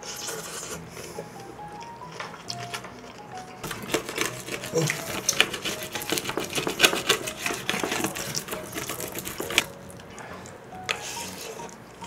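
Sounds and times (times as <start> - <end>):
wooden spoon scraping metal tray: 3.6 - 9.7.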